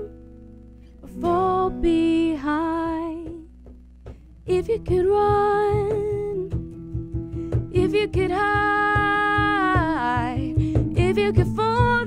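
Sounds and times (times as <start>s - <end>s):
strummed guitar: 0.0s - 12.0s
woman singing: 1.0s - 3.5s, 4.4s - 6.6s, 7.5s - 12.0s.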